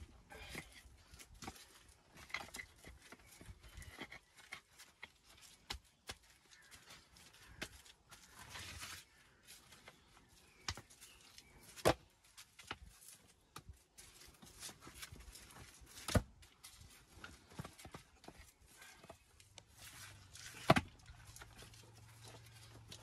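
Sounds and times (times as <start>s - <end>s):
soil and grit scraping: 12.9s - 23.0s.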